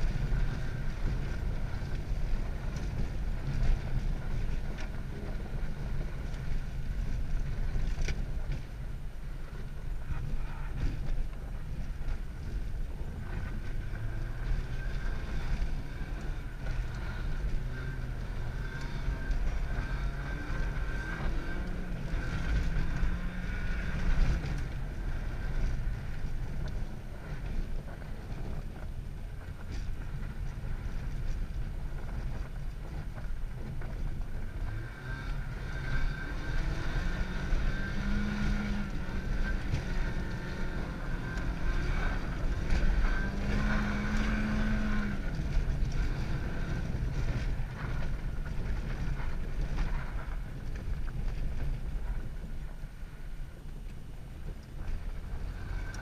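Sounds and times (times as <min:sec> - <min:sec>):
wind noise: 0:00.0 - 0:56.0
car engine revving: 0:09.4 - 0:28.6, 0:33.6 - 0:50.8.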